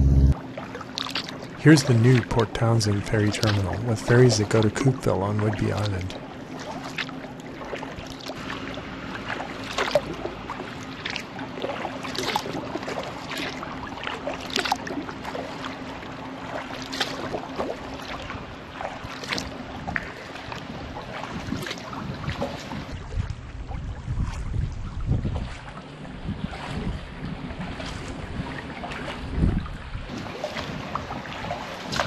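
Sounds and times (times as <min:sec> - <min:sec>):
steady low hum: 0:00.0 - 0:31.9
water lapping against hull: 0:00.0 - 0:32.0
paddle blades splashing in water: 0:00.2 - 0:32.0
wind buffeting microphone: 0:18.2 - 0:32.0.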